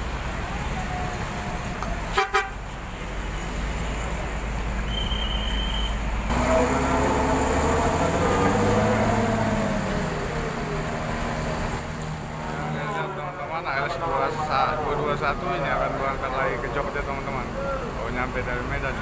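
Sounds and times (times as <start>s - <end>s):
bus engine revving: 0.0s - 19.0s
diesel engine idling: 0.0s - 19.0s
bus horn blasts: 2.1s - 2.6s.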